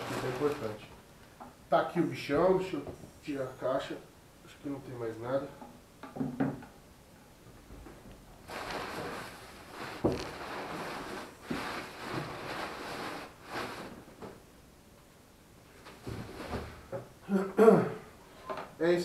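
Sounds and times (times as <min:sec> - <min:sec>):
cardboard and paper rustling: 0:00.0 - 0:00.9, 0:08.5 - 0:14.0.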